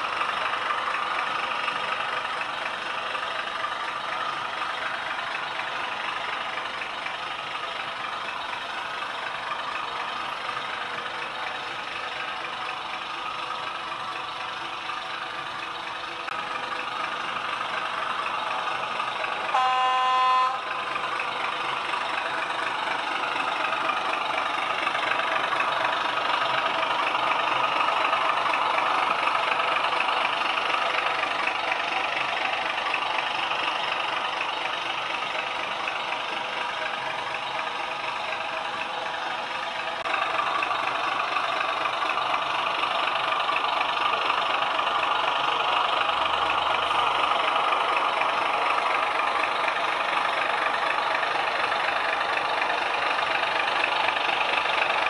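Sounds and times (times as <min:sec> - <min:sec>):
diesel engine sound from small speaker: 0:00.0 - 0:55.0
model locomotive horn toot: 0:19.5 - 0:20.8.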